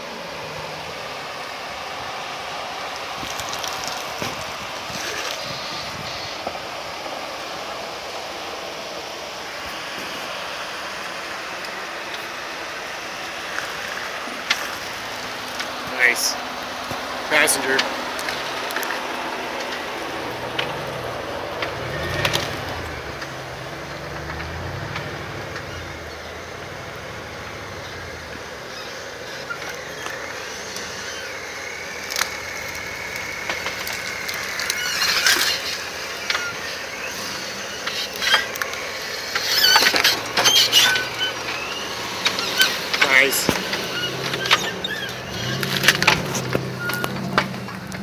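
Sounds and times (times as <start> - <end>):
engine running at low revs: 0.0 - 48.0
knocks and clicks from tyres: 2.6 - 6.8, 13.2 - 48.0
thin high squeal: 39.2 - 47.3.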